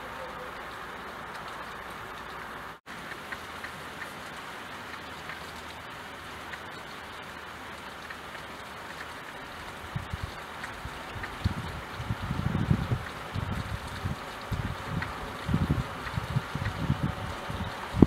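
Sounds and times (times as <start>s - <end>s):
rain on a window: 0.0s - 18.0s.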